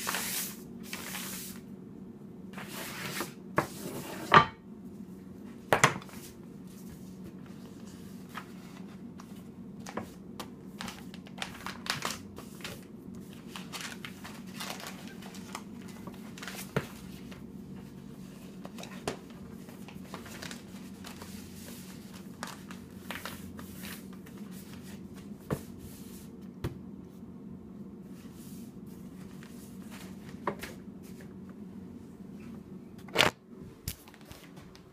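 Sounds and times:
steady low hum: 0.0 - 34.9
paper rustling and crinkling: 6.0 - 25.7, 29.0 - 31.4, 33.9 - 34.9.

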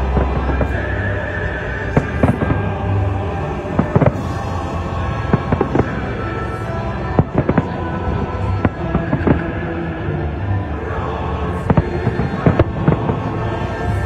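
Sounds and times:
music playing: 0.0 - 14.0
fireworks bangs: 1.9 - 4.5, 5.1 - 9.6.

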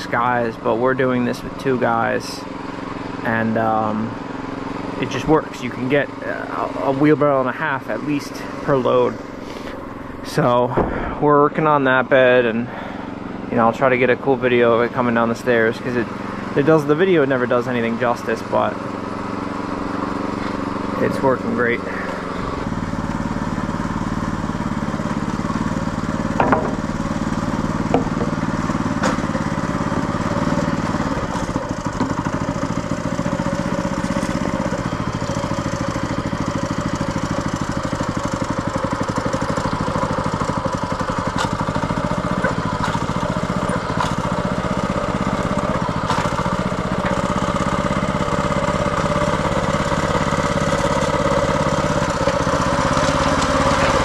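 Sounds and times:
small gas engine running: 0.0 - 54.0
sharp knocks: 26.4 - 26.9, 27.9 - 28.4.

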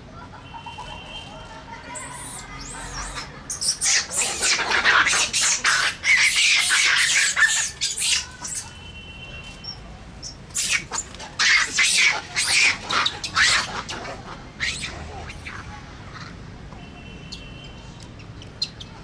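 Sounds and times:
monkeys screeching: 1.9 - 8.8, 9.6 - 16.4.

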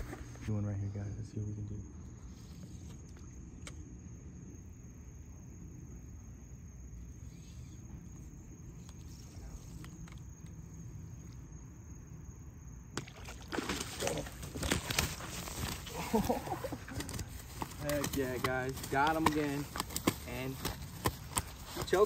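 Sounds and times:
high insect tone: 0.0 - 22.0
fish thrashing and splashing: 13.0 - 18.1.

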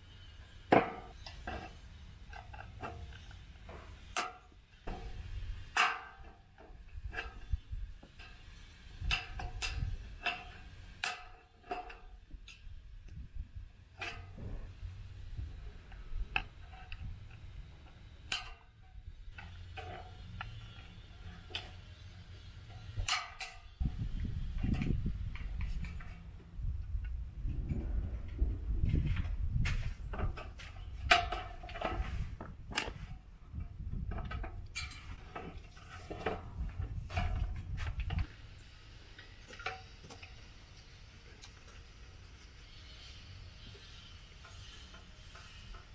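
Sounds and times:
low rumble: 23.9 - 30.5.

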